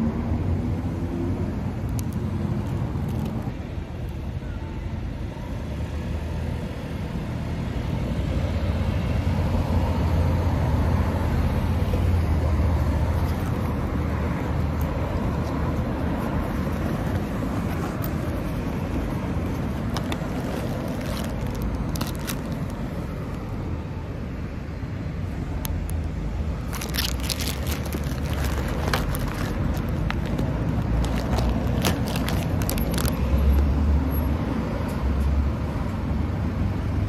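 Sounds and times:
road traffic rumble: 0.0 - 37.0
plastic bag crinkling: 19.5 - 23.4, 26.6 - 33.6.

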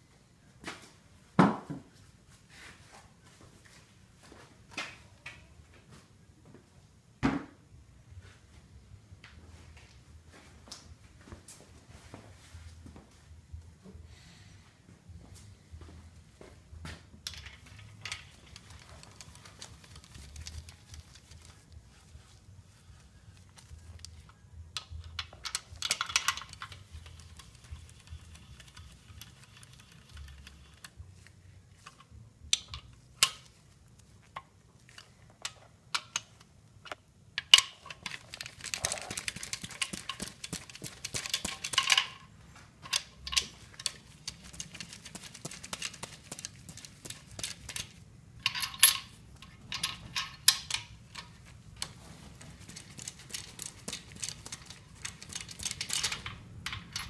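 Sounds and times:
metal tools clinking: 37.4 - 57.0
hand ratchet clicking: 42.9 - 51.3, 52.7 - 57.0.

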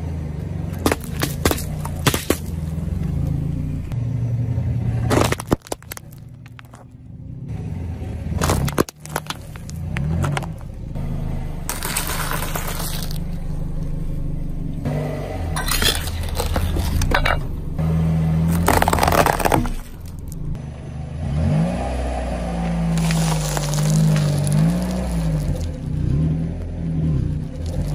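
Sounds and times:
car engine idling: 0.0 - 21.6
tyre crushing small objects: 0.7 - 2.8, 5.1 - 7.0, 8.4 - 10.8, 11.7 - 13.5, 15.6 - 17.5, 18.4 - 20.5, 22.9 - 25.9, 27.6 - 27.9
engine revving: 6.4 - 27.9.

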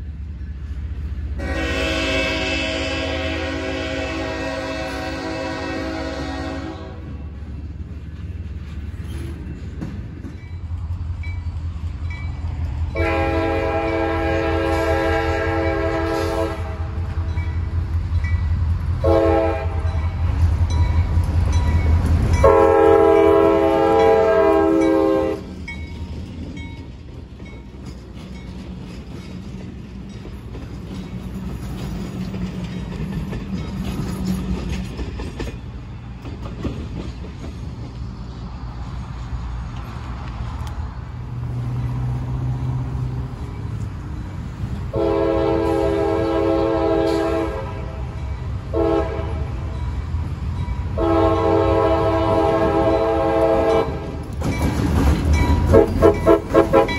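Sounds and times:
rumble and clatter of passing trains: 0.0 - 56.9
diesel locomotive horn blasts: 1.4 - 7.2, 12.9 - 17.4, 19.0 - 20.2, 22.4 - 25.6, 44.9 - 49.8, 50.9 - 54.3, 55.6 - 56.9.

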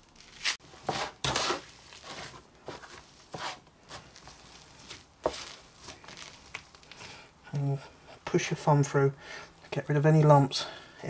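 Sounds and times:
hands kneading crumbly paste: 0.0 - 7.7.

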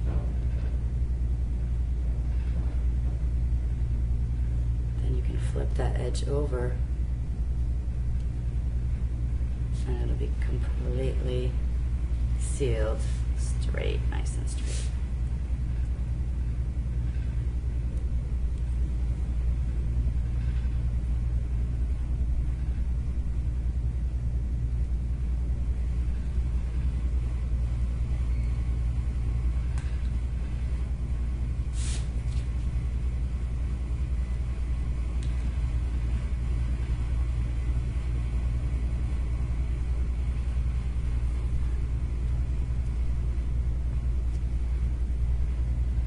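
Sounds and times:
low background hum: 0.0 - 46.0
brief hiss: 31.7 - 32.2.

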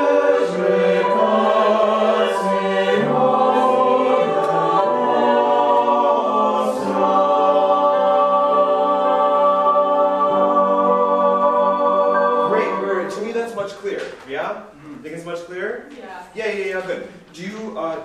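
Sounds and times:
choir singing held chords: 0.0 - 13.9.

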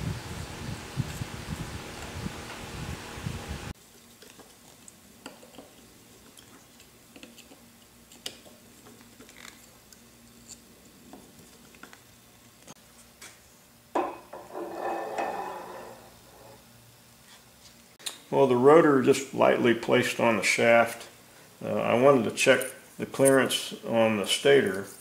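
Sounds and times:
metal scraping: 14.3 - 16.6.

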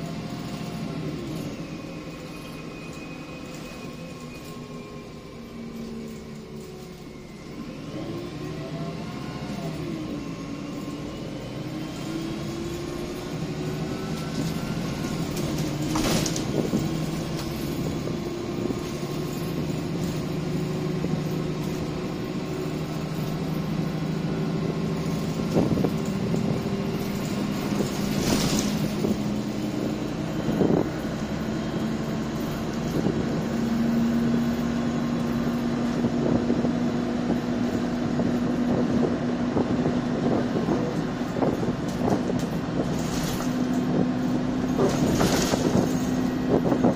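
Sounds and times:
bus diesel engine: 0.0 - 46.9
road noise: 0.0 - 46.9.

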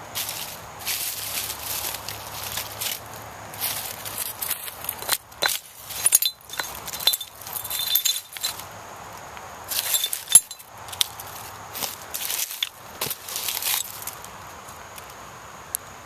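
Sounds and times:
leaves crunching underfoot: 0.0 - 8.6, 9.7 - 15.1
glass shards clinking: 3.7 - 8.6, 9.7 - 11.1.

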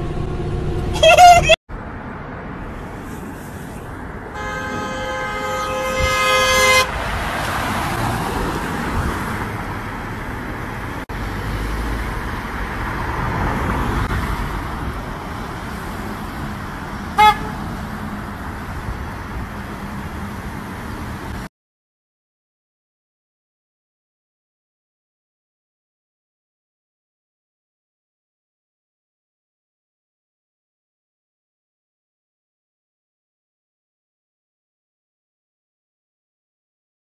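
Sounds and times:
car horn: 0.8 - 1.6, 4.3 - 7.6, 17.1 - 17.8.

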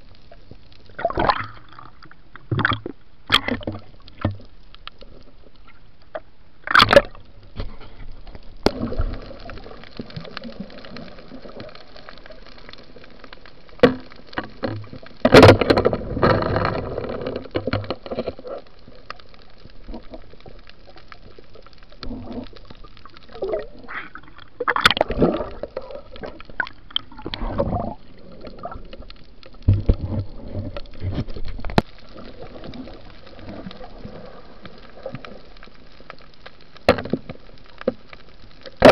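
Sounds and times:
underwater water sloshing: 0.0 - 38.9
underwater knocks: 29.6 - 31.8.

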